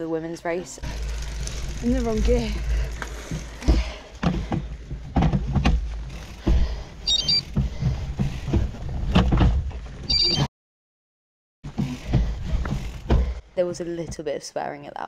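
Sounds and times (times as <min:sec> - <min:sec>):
bike knocking and rattling: 0:00.5 - 0:10.1, 0:11.7 - 0:13.4
short high chirps: 0:07.1 - 0:07.4, 0:10.1 - 0:10.5.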